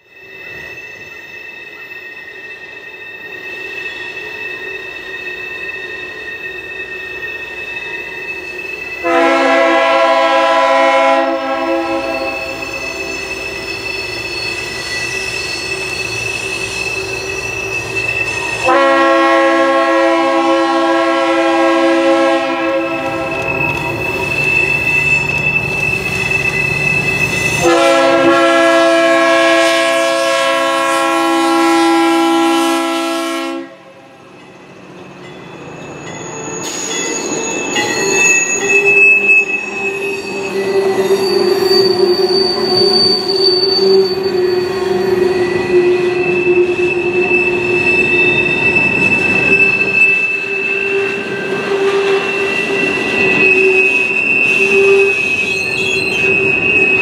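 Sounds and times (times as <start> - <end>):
wheel flanges squealing: 0.0 - 19.4, 21.4 - 28.6, 34.4 - 57.0
rail noise: 0.0 - 57.0
locomotive air horn blasts: 9.0 - 12.6, 18.6 - 23.5, 27.6 - 34.2.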